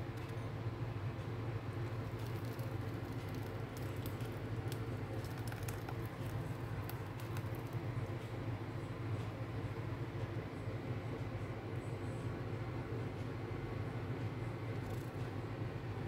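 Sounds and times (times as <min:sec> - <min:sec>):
steady low hum: 0:00.0 - 0:16.0
batter pouring soft patter: 0:01.7 - 0:08.2.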